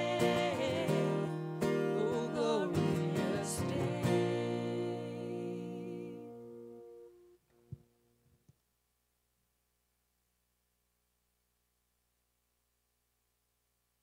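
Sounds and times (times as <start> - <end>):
person singing: 0.0 - 6.4
strummed acoustic guitar: 0.0 - 7.2.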